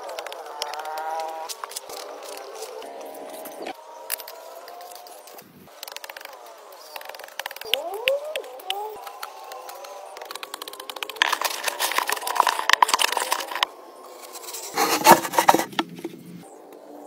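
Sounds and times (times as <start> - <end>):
digging dry soil by hand: 9.0 - 16.2
pipe scraping into earth: 14.2 - 16.2.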